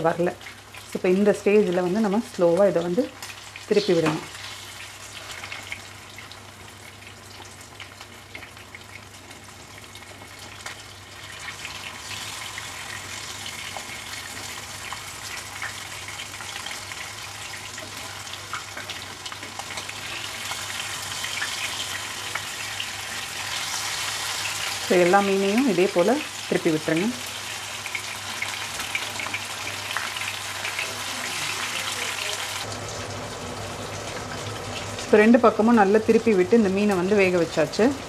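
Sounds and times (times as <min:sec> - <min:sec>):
fish sizzling in a pan: 0:00.2 - 0:35.4.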